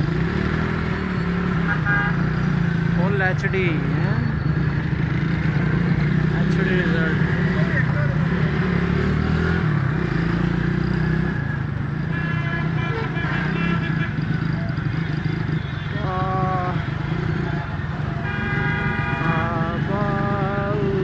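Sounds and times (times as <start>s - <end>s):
motorcycle engine running: 0.0s - 21.0s
vehicle horns honking: 1.6s - 2.4s, 12.0s - 20.2s.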